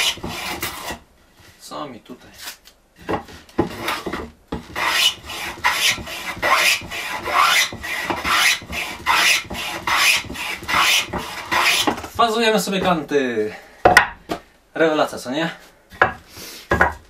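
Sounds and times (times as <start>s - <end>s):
hand plane strokes on wood: 0.0s - 1.0s, 3.5s - 12.0s.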